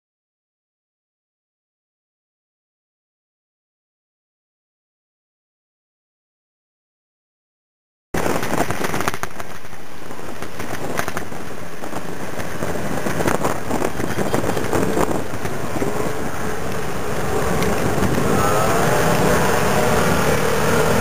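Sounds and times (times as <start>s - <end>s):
scooter engines: 8.2s - 21.0s
traffic rushing: 8.2s - 21.0s
wind buffeting microphone: 8.2s - 21.0s.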